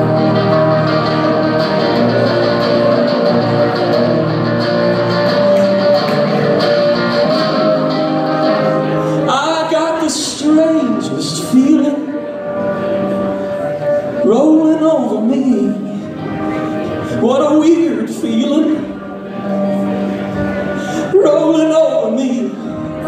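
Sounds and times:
electric guitar ringing chords: 0.0s - 23.0s
man singing: 9.1s - 12.3s, 14.2s - 16.1s, 17.0s - 19.1s, 20.8s - 23.0s.

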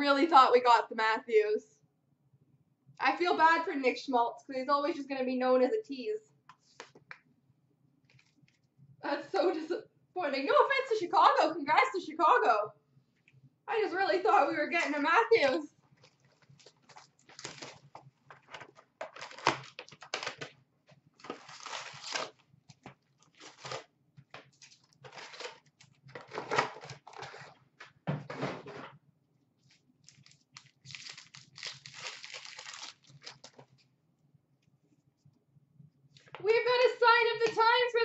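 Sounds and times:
card packs crinkling and tearing: 16.0s - 20.6s, 21.2s - 27.6s, 30.0s - 33.8s.

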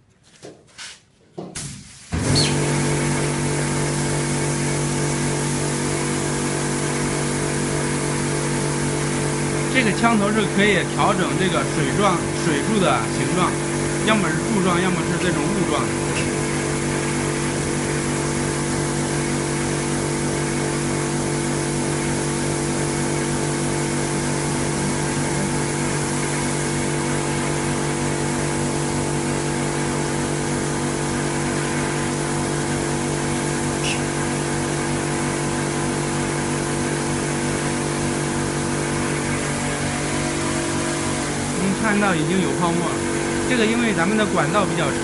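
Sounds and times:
pump motor humming: 1.4s - 45.0s
spray hissing: 22.2s - 27.1s.

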